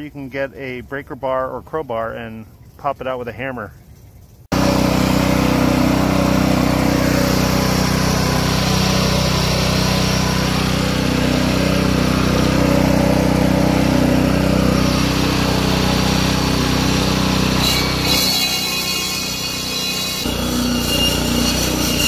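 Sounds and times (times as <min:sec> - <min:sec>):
concrete saw engine running: 0:04.5 - 0:22.0.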